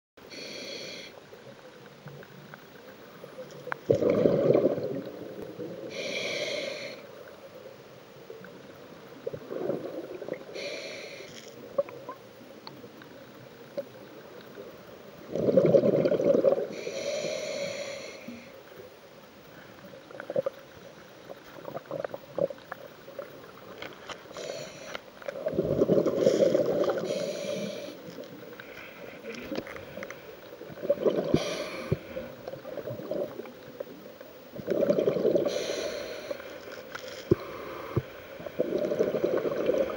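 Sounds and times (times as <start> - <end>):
bubbling exhalations: 3.9 - 5.2, 15.3 - 16.7, 25.4 - 27.2, 30.7 - 33.4, 34.6 - 35.8, 37.3 - 39.9
hissing regulator inhalations: 5.9 - 7.1, 16.7 - 18.5, 26.1 - 30.2, 31.1 - 32.4, 35.3 - 39.9.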